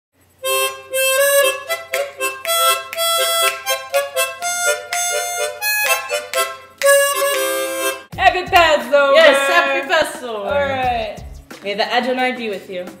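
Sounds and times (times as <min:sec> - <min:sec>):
harmonica playing chords: 0:00.4 - 0:09.8.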